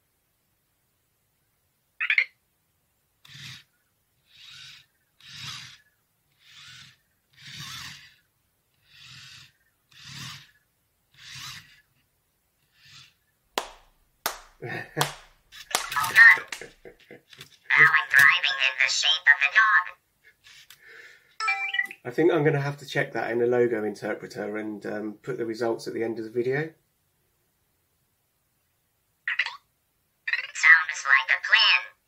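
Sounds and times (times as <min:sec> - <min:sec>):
robot motors whirring: 0:03.2 - 0:12.0, 0:12.6 - 0:13.2
short high chirp: 0:21.4 - 0:22.0.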